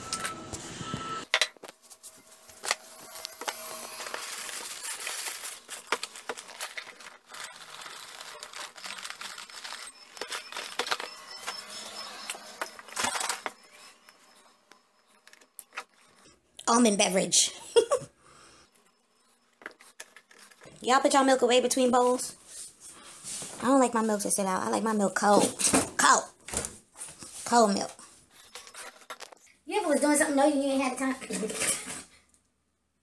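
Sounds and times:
box rustling: 1.9s - 14.4s
cereal pouring into bowl: 3.9s - 11.2s.

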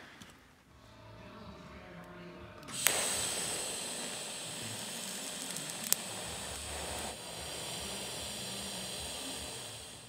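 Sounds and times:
sharp click: 2.6s - 3.7s, 5.0s - 6.7s
welding arc hissing: 2.7s - 10.0s.

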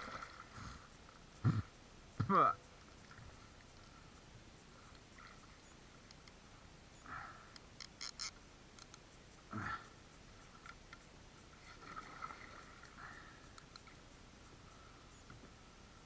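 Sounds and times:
fishing tackle clicks: 7.5s - 9.0s.

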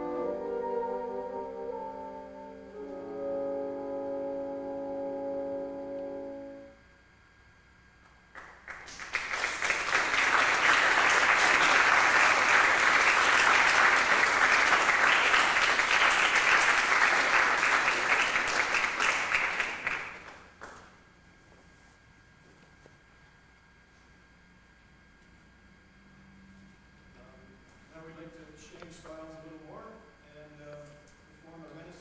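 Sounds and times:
bassoon chord: 0.0s - 6.8s
audience applauding: 8.4s - 20.8s.

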